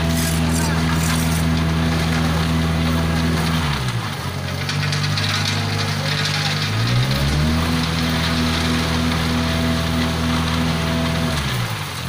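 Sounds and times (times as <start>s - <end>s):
concrete pouring down chute: 0.0s - 12.0s
diesel engine running: 0.0s - 12.0s.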